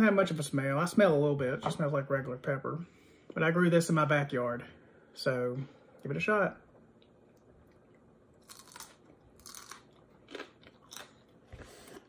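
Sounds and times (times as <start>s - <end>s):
crunching of chewing pepper: 8.4s - 12.0s.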